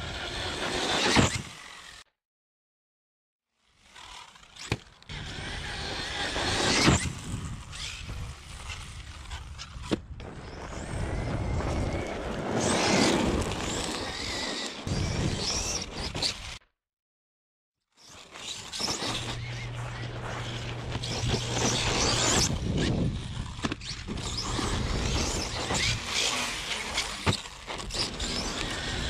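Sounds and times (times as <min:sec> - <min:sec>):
rc truck motor whining: 0:00.0 - 0:02.1, 0:03.6 - 0:16.7, 0:17.9 - 0:29.0
tyres on gravel: 0:04.4 - 0:16.6, 0:18.2 - 0:29.0.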